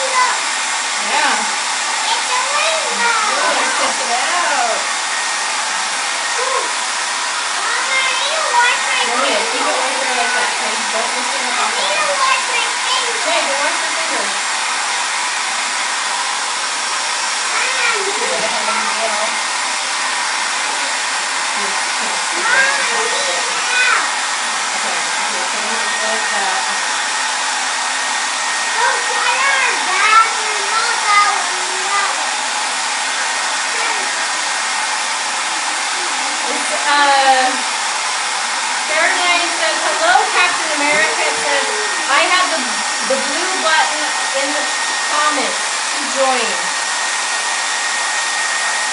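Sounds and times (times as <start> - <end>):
voices: 0.0 - 5.0, 7.6 - 14.4, 20.6 - 27.0, 35.4 - 37.8, 38.7 - 46.8
hair dryer blowing: 0.0 - 48.9.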